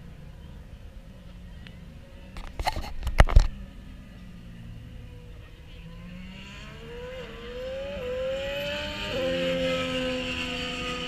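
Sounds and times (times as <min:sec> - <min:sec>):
racing engine accelerating: 0:05.8 - 0:11.0.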